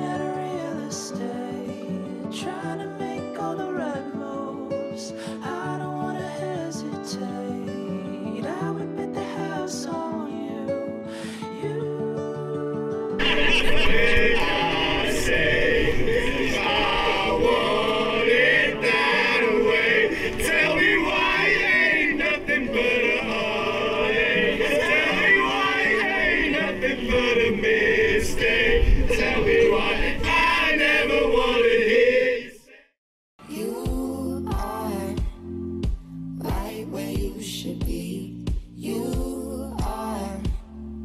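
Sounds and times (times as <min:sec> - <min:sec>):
choir singing: 0:12.3 - 0:35.2, 0:36.5 - 0:40.4.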